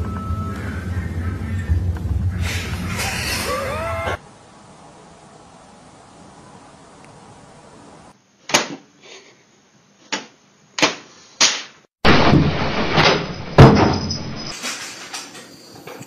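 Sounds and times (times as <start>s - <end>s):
banging and rattling: 12.0s - 16.0s.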